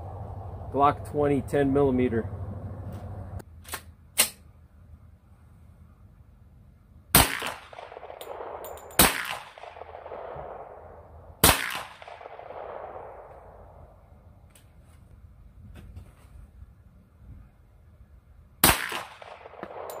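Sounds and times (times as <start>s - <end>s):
suppressed pistol shots echoing: 7.1s - 13.7s, 18.6s - 20.0s.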